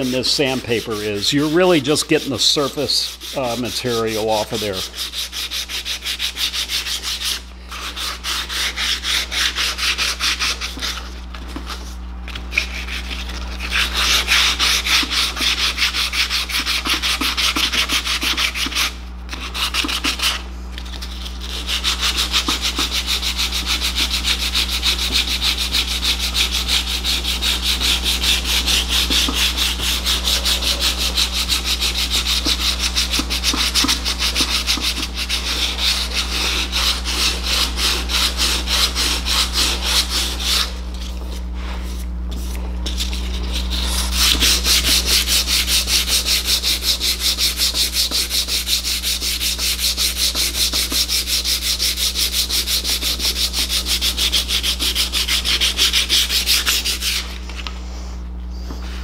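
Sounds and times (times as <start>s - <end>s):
sandpaper rubbing on metal: 0.0s - 57.4s.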